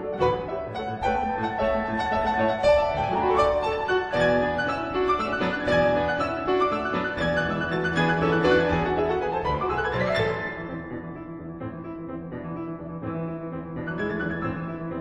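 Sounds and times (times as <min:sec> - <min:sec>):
two pianos playing: 0:00.0 - 0:15.0.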